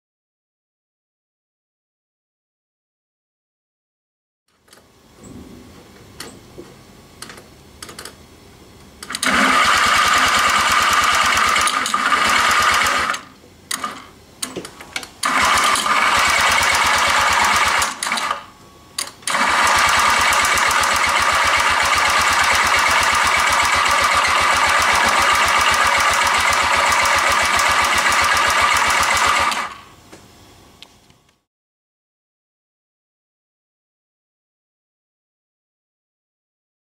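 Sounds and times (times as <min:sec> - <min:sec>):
scooter engine running: 0:09.2 - 0:13.2, 0:15.2 - 0:18.1, 0:19.3 - 0:29.8.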